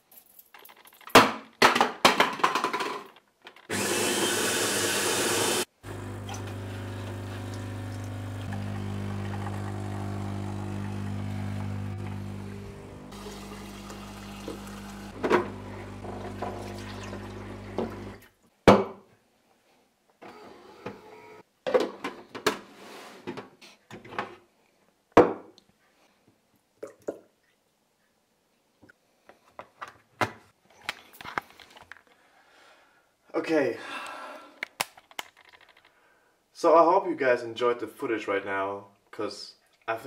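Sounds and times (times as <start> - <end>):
clicks and knocks of handling: 34.6 - 35.9.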